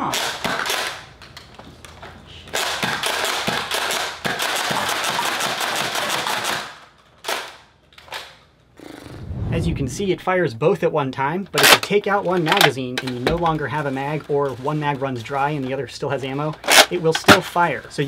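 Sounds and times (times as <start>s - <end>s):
toy blaster clacks and pops: 0.0s - 1.1s, 2.5s - 8.4s.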